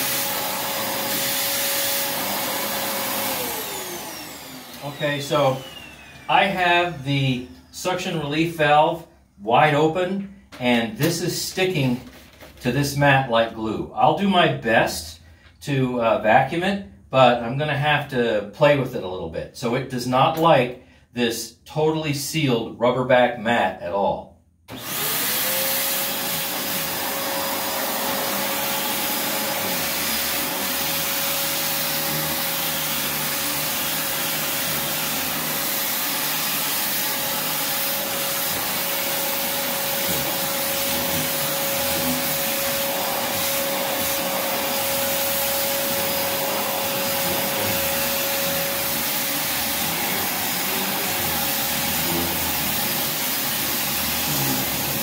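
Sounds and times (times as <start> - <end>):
vacuum cleaner motor whine: 0.0 - 7.7, 24.7 - 55.0.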